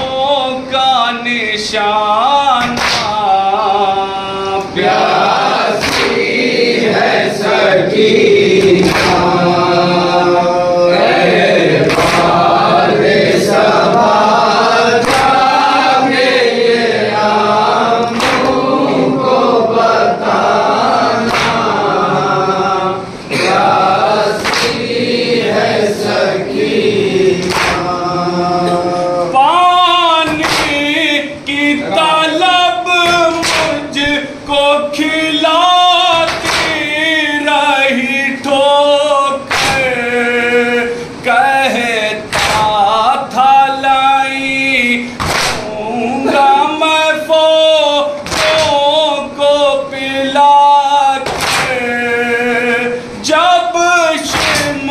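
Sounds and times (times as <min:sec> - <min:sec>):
man reciting: 0:00.0 - 0:54.9
men chanting in unison: 0:00.0 - 0:54.9
hands slapping chests: 0:02.6 - 0:03.2, 0:05.8 - 0:06.3, 0:08.6 - 0:09.3, 0:11.9 - 0:12.4, 0:18.1 - 0:18.6, 0:21.2 - 0:21.8, 0:24.4 - 0:24.8, 0:27.4 - 0:27.9, 0:30.3 - 0:30.8, 0:33.4 - 0:33.8, 0:36.3 - 0:36.8, 0:45.2 - 0:45.7, 0:48.2 - 0:48.8, 0:51.2 - 0:51.8, 0:54.3 - 0:54.7.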